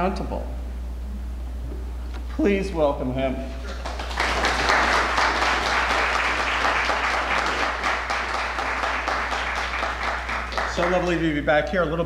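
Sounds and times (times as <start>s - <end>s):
audience applauding: 3.6s - 11.3s.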